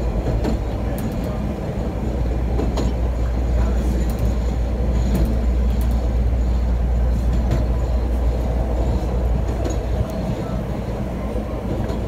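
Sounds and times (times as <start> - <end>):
faint clicks from rails: 0.0 - 12.0
train rumbling on tracks: 0.0 - 12.0.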